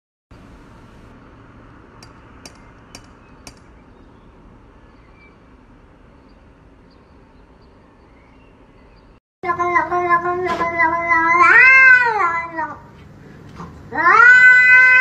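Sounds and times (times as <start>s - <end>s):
steady background hum: 0.3s - 7.9s
metal door knocker knocking: 2.0s - 3.7s.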